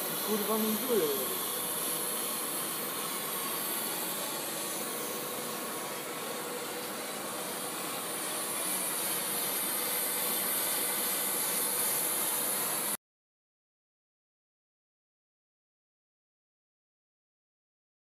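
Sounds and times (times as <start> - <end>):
welding hiss: 0.0 - 13.0.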